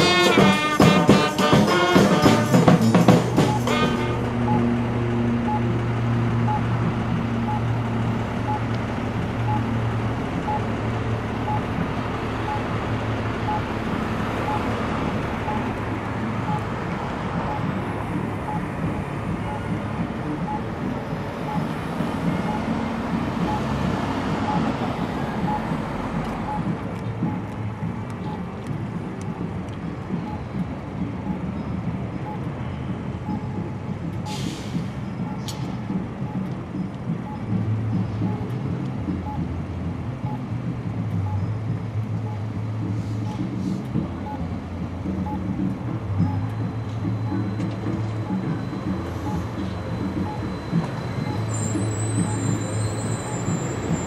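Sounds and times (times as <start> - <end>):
cars and bus driving past: 0.0 - 54.0
faint beep: 14.5 - 14.7, 15.4 - 15.7, 17.4 - 17.8, 19.4 - 19.8, 22.5 - 22.7, 23.4 - 23.8, 24.5 - 25.7, 30.2 - 30.6, 31.3 - 33.8, 35.0 - 35.7, 36.3 - 38.5, 39.2 - 39.5, 46.2 - 54.0
short hiss of air: 34.3 - 35.0.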